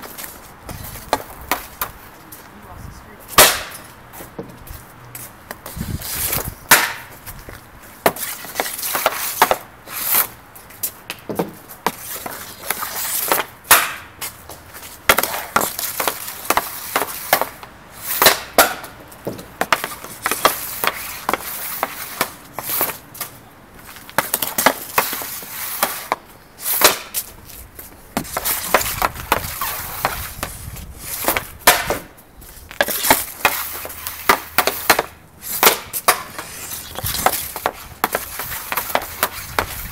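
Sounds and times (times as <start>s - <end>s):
stick blades scraping pad: 5.2s - 7.2s, 7.8s - 10.4s, 11.5s - 39.9s
hockey stick clacking on puck: 6.7s - 7.1s, 11.1s - 14.1s, 15.1s - 23.3s, 24.0s - 27.3s, 32.8s - 39.9s.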